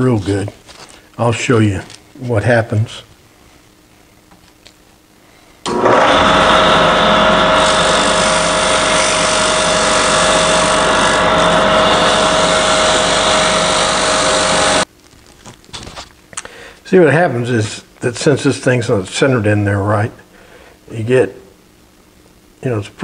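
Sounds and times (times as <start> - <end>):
wood lathe running: 5.7 - 14.9.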